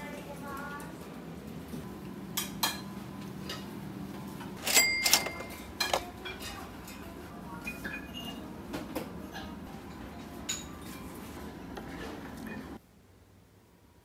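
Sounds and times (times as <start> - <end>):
dishes and cutlery clinking: 2.3 - 12.8.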